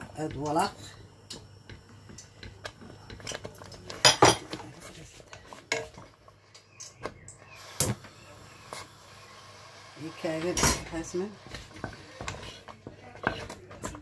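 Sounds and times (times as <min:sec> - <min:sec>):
wooden spoon scraping steel pot: 0:02.9 - 0:06.5, 0:10.0 - 0:14.0.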